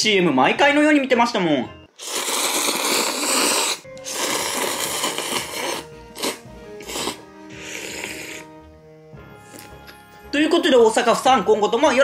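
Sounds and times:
background music: 0.0 - 12.0
person slurping noodles: 2.0 - 8.6.

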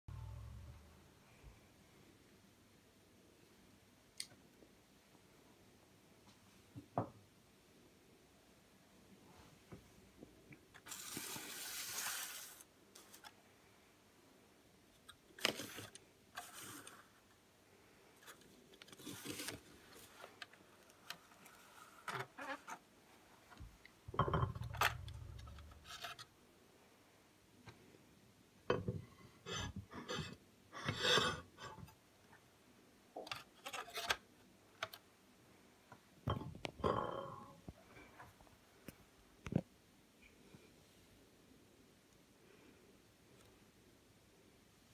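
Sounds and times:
plastic model scraping on wood: 25.4 - 26.2.

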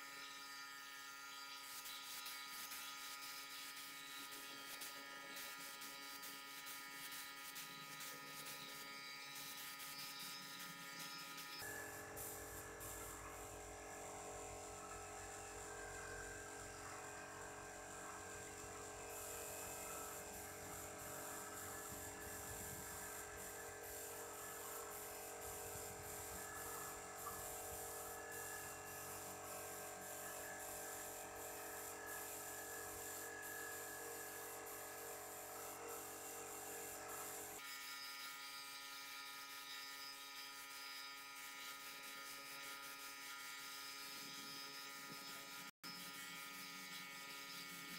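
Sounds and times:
electric air compressor humming: 0.0 - 47.9
paint spray gun hissing: 1.6 - 37.6.

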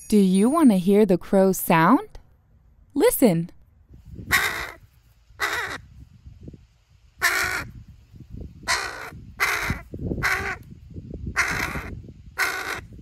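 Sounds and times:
crow cawing: 4.3 - 4.8, 5.4 - 5.9, 7.2 - 7.7, 8.7 - 10.6, 11.4 - 13.0.

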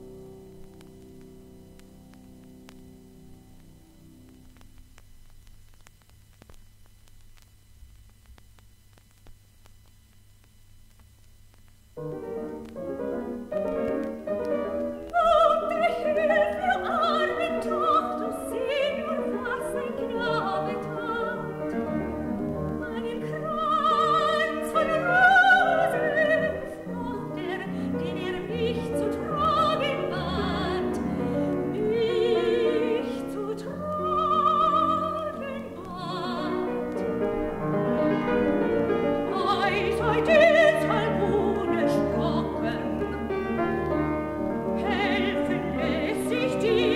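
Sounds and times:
soprano singing: 12.1 - 46.9.

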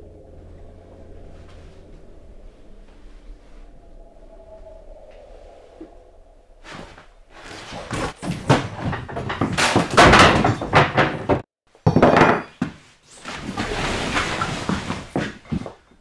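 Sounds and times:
wooden bench falling on floor: 7.9 - 15.8.

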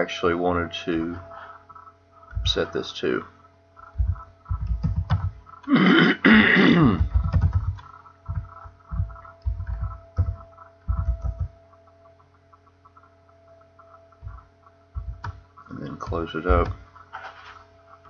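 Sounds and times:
faint steady hum: 0.0 - 18.0
typing on computer keyboard: 3.8 - 5.4, 7.0 - 11.6, 13.8 - 16.8.

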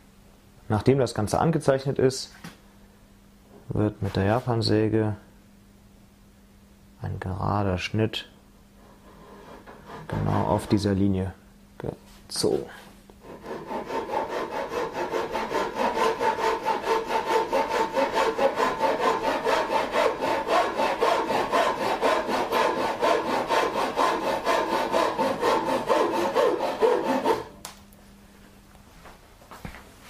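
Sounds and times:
saw cutting wood: 9.2 - 10.6, 13.2 - 27.6.

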